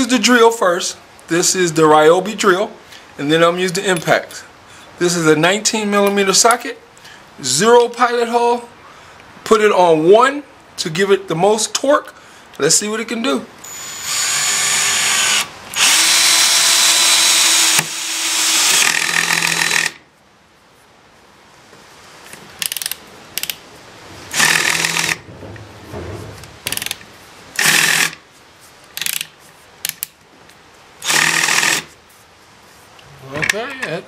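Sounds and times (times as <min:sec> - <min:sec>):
drill trigger bursts: 0:13.6 - 0:20.0, 0:24.3 - 0:25.2, 0:27.6 - 0:28.2, 0:31.0 - 0:31.9
cordless drill motor under load: 0:13.7 - 0:20.0, 0:24.3 - 0:25.2, 0:27.6 - 0:28.2, 0:31.0 - 0:31.9.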